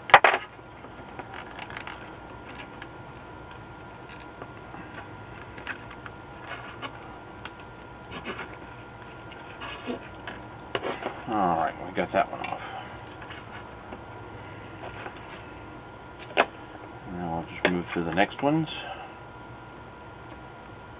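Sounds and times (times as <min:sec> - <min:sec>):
clicks and scratches from handling: 0:00.1 - 0:11.3, 0:12.2 - 0:14.0.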